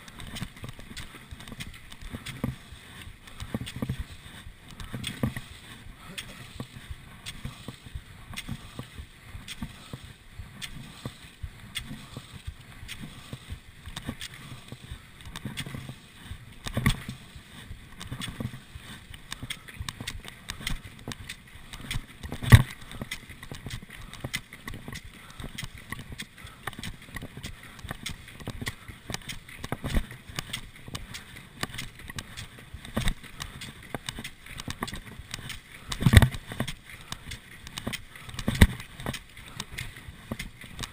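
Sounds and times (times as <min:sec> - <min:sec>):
ski poles planting: 0:00.0 - 0:40.9
skis swishing: 0:00.0 - 0:40.9.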